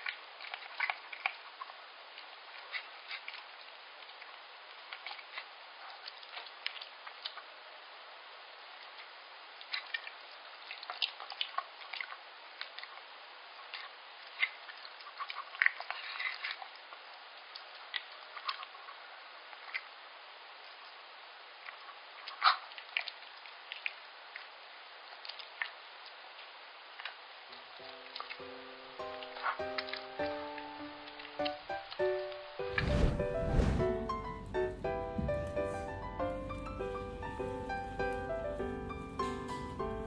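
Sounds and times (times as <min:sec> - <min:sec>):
dog eating wet food: 0:00.0 - 0:01.8, 0:09.6 - 0:17.0
faint steady hiss: 0:00.0 - 0:40.0.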